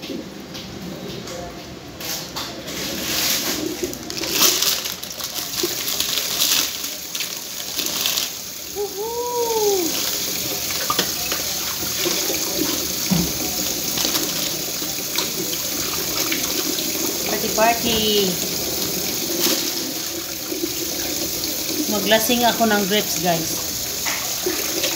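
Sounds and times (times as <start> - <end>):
tap running into sink: 10.4 - 19.8.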